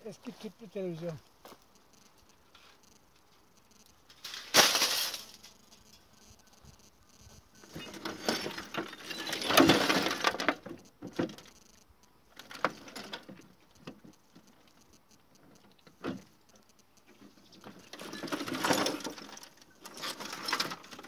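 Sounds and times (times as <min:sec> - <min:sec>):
broken parts rattling in plastic casing: 0:17.8 - 0:21.0.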